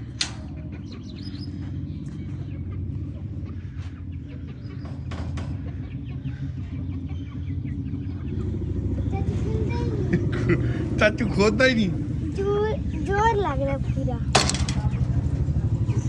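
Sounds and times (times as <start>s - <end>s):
hens clucking: 0.0s - 11.0s
steady low rumble: 0.0s - 16.0s.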